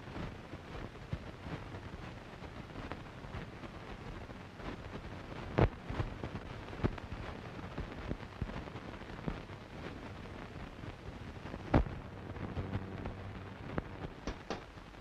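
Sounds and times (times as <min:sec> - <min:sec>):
film soundtrack hiss and crackle: 0:00.0 - 0:15.0
loud pops: 0:11.6 - 0:15.0
faint clicks: 0:13.7 - 0:14.8.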